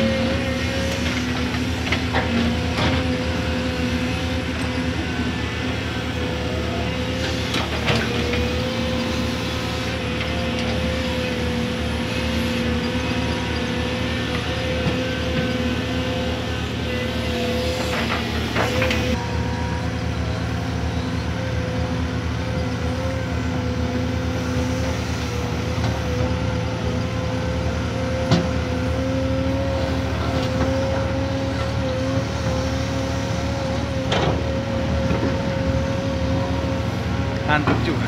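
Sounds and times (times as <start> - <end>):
excavator diesel engine running: 0.0 - 38.0.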